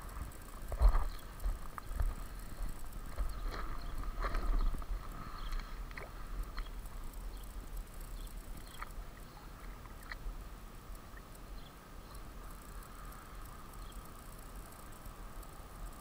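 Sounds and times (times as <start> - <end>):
water splashing and lapping: 0.1 - 7.2, 8.5 - 11.4.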